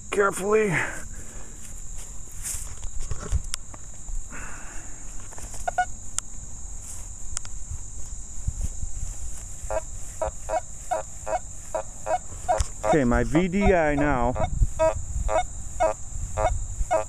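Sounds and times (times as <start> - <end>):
grass and soil rustle: 0.1 - 17.0
metal detector beeping: 12.4 - 17.0.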